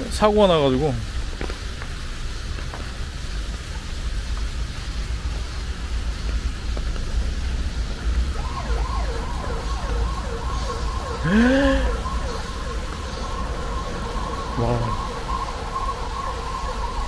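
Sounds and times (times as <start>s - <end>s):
traffic rumble and hiss: 0.0s - 17.0s
emergency vehicle siren: 4.9s - 17.0s.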